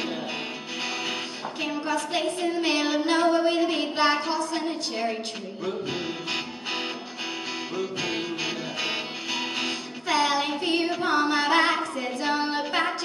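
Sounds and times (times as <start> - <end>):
strummed guitar: 0.0 - 13.0
girl singing into a microphone: 1.2 - 6.4, 9.8 - 13.0.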